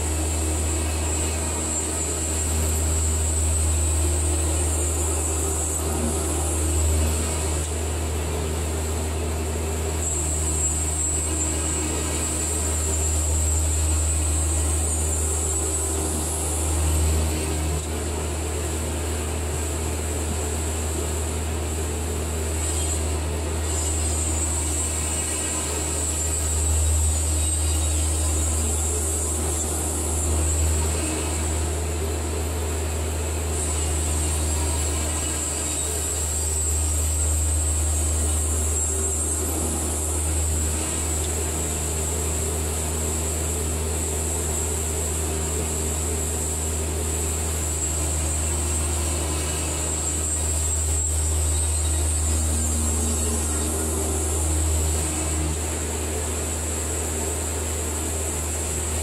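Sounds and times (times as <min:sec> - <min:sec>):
bandsaw mill engine droning: 0:00.0 - 0:59.0.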